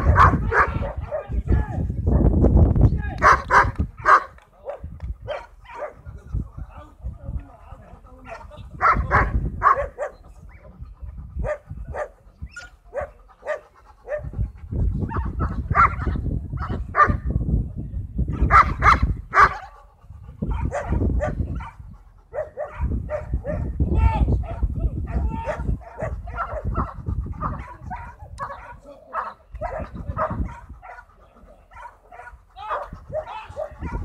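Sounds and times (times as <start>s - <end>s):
dog barking: 0.0s - 1.3s, 3.2s - 6.0s, 8.2s - 10.2s, 11.4s - 14.3s, 15.1s - 17.3s, 18.5s - 19.7s, 20.5s - 23.7s, 24.4s - 31.1s, 31.7s - 34.0s.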